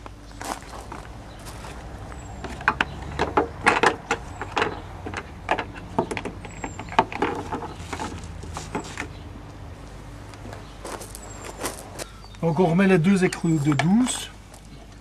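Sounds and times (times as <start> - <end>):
clicks and knocks of car parts: 2.4 - 9.2.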